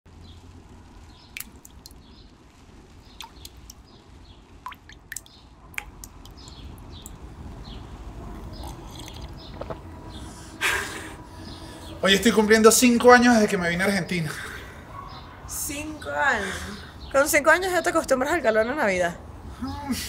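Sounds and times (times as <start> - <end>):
faint bird chirping: 0.1 - 20.0
water drops plinking: 3.2 - 3.8, 4.7 - 7.2.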